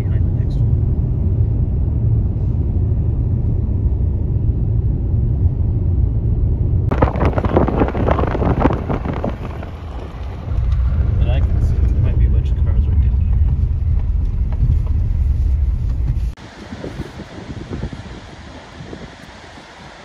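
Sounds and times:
car road noise rumble: 0:00.0 - 0:20.0
outdoor rushing hiss with gusts: 0:16.3 - 0:20.0.

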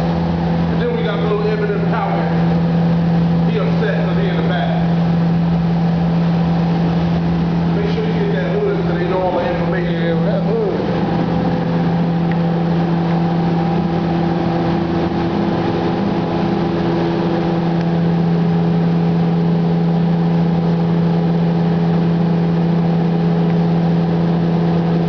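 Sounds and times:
machine humming: 0:00.0 - 0:25.0.

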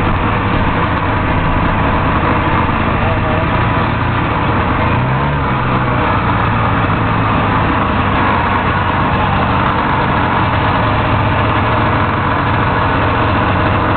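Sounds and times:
snowmobile engine running: 0:00.0 - 0:13.9.

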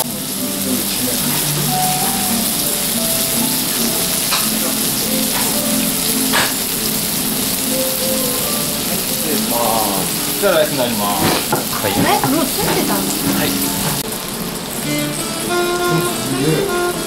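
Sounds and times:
steak sizzling on hot plate: 0:00.0 - 0:17.0
fat spattering pops: 0:11.2 - 0:13.4.

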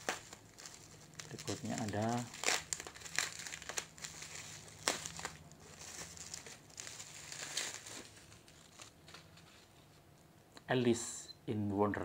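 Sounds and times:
sharp plastic crackles: 0:00.0 - 0:09.4
bubble wrap crinkling: 0:00.0 - 0:09.9.

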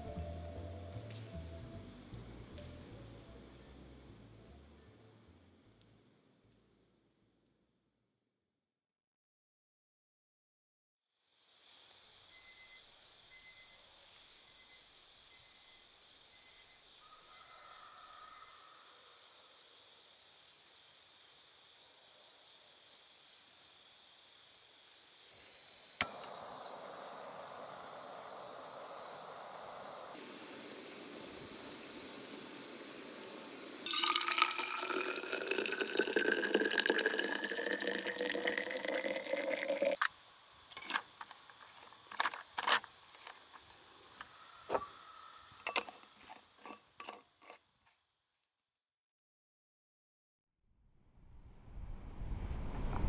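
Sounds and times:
water running into container: 0:33.8 - 0:40.1.

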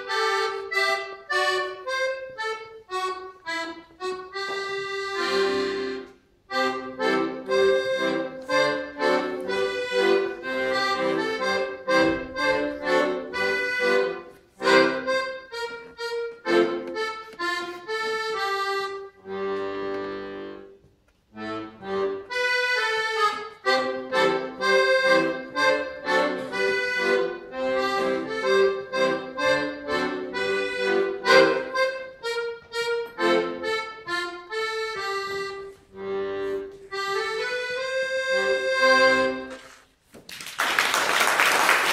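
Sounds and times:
accordion solo: 0:00.0 - 0:40.0
applause: 0:40.2 - 0:41.9.

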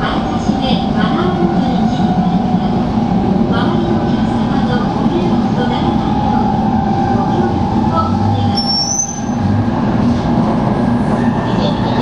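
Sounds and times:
train wheels and air rumble: 0:00.0 - 0:12.0
high squeal: 0:08.5 - 0:09.4.

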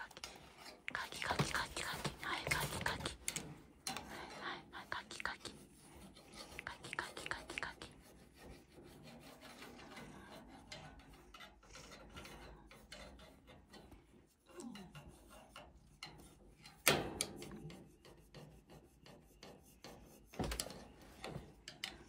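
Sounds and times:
stick scratching through fur: 0:05.4 - 0:13.6.

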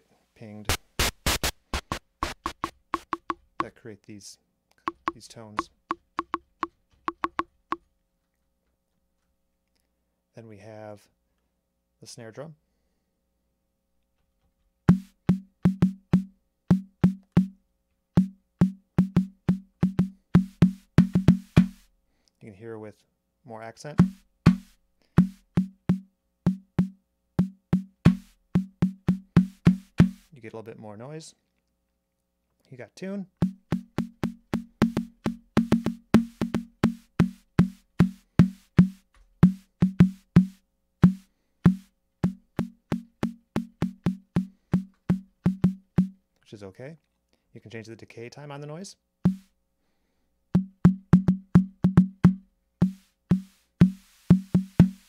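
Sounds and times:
drum machine snare hits: 0:00.7 - 0:03.8, 0:04.9 - 0:07.6, 0:14.9 - 0:17.6, 0:18.2 - 0:21.9, 0:24.0 - 0:30.3, 0:33.4 - 0:46.2, 0:49.3 - 0:49.5, 0:50.6 - 0:55.0.

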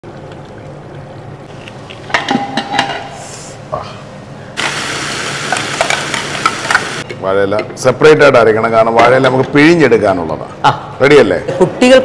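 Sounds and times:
pottery clinking and knocking: 0:02.1 - 0:03.2
steady hiss: 0:04.6 - 0:07.0.

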